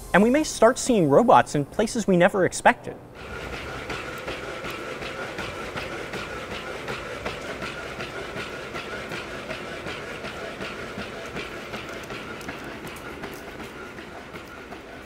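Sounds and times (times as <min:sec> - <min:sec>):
robot feet clicking: 0:03.2 - 0:15.0.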